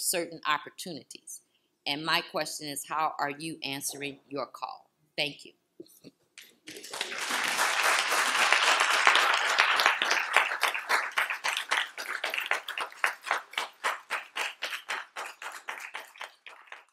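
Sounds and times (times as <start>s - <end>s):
audience applauding: 6.7s - 16.9s.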